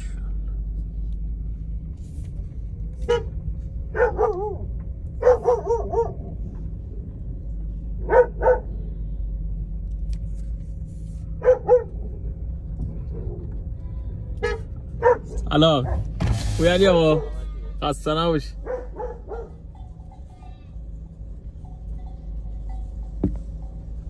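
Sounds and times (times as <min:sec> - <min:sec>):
dog barking: 0:03.0 - 0:06.3, 0:08.0 - 0:08.7, 0:11.4 - 0:12.0, 0:14.4 - 0:16.1, 0:18.6 - 0:19.6.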